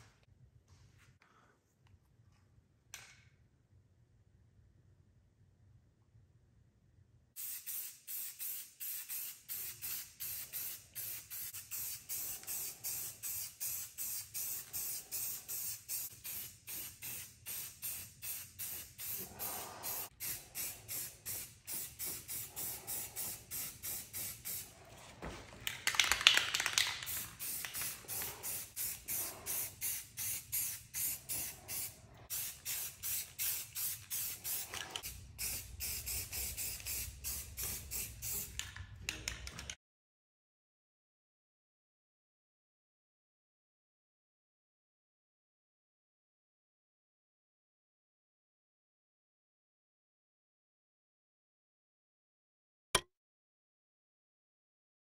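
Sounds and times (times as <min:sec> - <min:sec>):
spray-paint can hissing: 0:07.4 - 0:24.7, 0:25.8 - 0:38.6.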